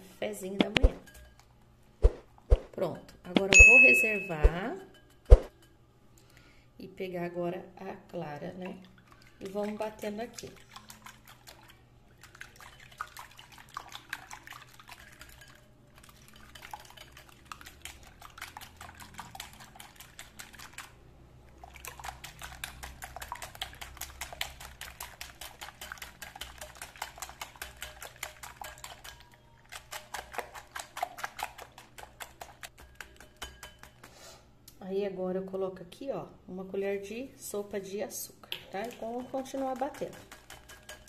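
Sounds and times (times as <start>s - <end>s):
whisk beating in glass bowl: 3.4s - 5.6s, 9.4s - 21.0s, 21.6s - 34.1s, 38.6s - 41.0s.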